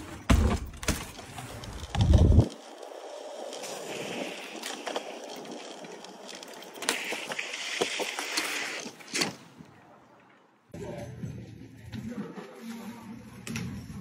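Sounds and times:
bike tyres rolling on concrete: 0.0 - 14.0
bike landing knocks: 0.1 - 1.2.

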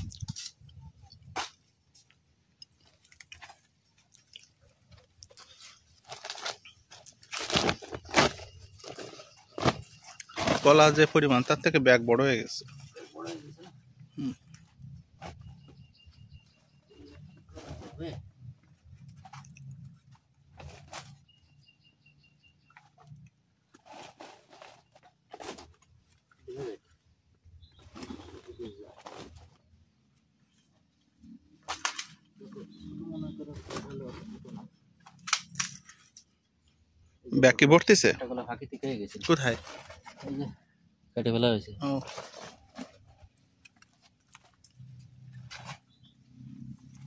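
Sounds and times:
banana leaves rustling: 5.3 - 11.6
bird chirping: 15.0 - 17.9, 21.0 - 23.2, 27.5 - 28.9, 44.8 - 46.8.

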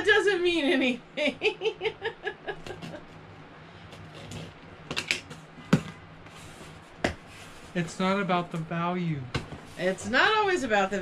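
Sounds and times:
person laughing: 1.2 - 3.0.

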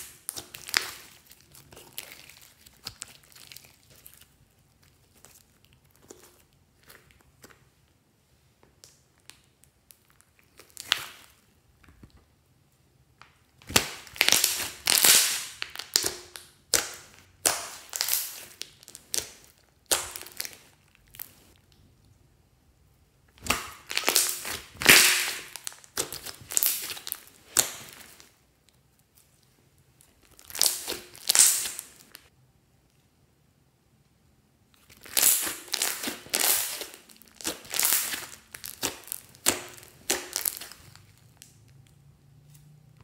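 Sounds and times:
slime crackling and popping: 0.0 - 7.7, 8.8 - 11.4, 13.6 - 21.8, 23.3 - 28.4, 30.0 - 32.3, 34.8 - 41.9.

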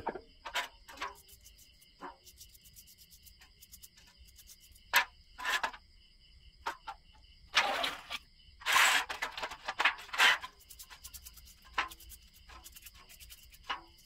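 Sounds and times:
crickets chirping: 0.0 - 14.0
toothbrush scrubbing metal part: 0.9 - 5.7, 10.0 - 14.0
parts handled in metal tin lid: 7.6 - 14.0.

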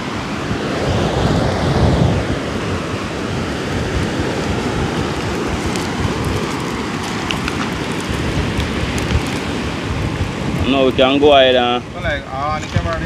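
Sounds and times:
sea rushing: 0.0 - 12.0
wind buffeting microphone: 0.0 - 13.0
faint water ticks: 4.4 - 9.6.

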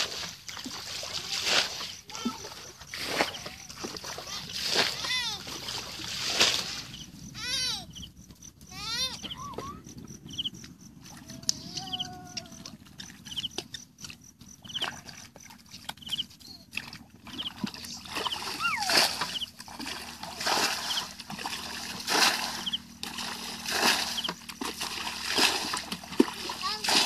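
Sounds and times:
bucket splashing in muddy water: 0.0 - 7.0, 14.7 - 27.0.

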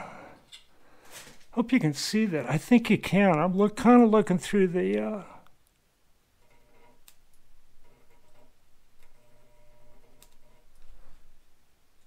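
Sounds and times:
electric engraving pencil buzzing: 9.1 - 10.7.

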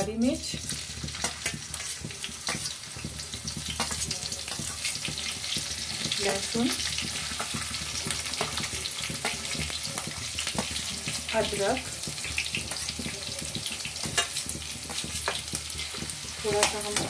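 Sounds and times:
chillies sizzling in hot oil: 0.0 - 17.0
oil popping and crackling: 0.0 - 17.0.

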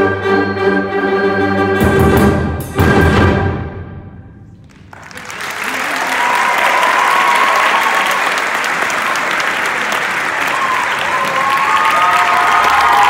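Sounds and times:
audience applauding: 4.6 - 13.0.

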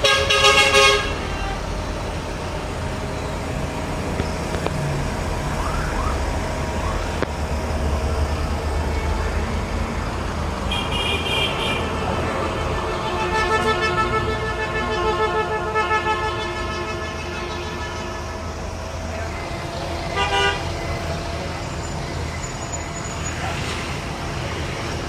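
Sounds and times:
vehicle horn tooting: 0.0 - 1.6, 10.7 - 18.4, 20.2 - 20.7
low rumble of traffic: 0.0 - 25.0.

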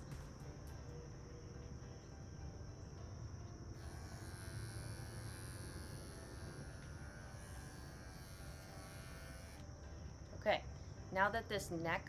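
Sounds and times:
electric clippers buzzing: 3.7 - 9.8.

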